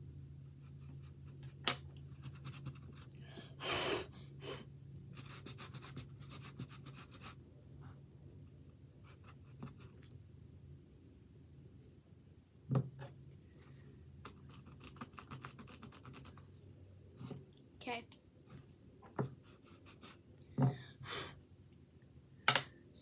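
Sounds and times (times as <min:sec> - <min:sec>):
pencil scratching on canvas: 0:05.1 - 0:08.0, 0:14.3 - 0:16.5.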